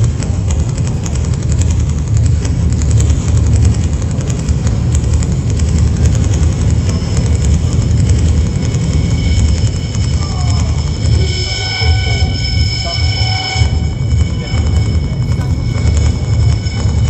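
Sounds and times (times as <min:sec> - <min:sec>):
experimental electronic music rumble: 0:00.0 - 0:17.0
thin high tone: 0:06.2 - 0:17.0.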